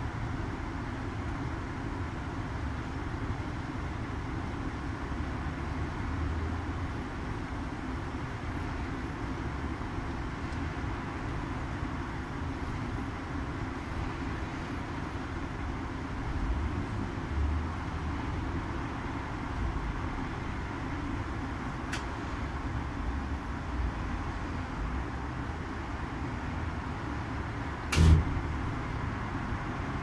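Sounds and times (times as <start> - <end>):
sharp knock: 27.9 - 28.3.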